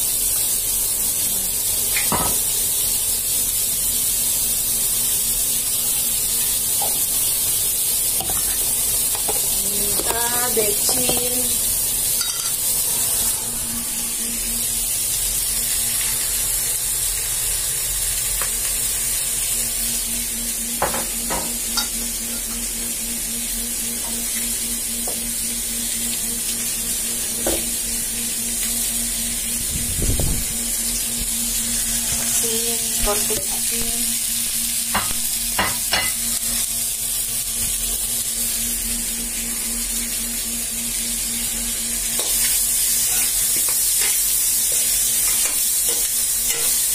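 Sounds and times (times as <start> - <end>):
food sizzling in a pan: 0.0 - 46.9
low hum: 9.5 - 17.4, 18.4 - 35.4, 36.0 - 42.9.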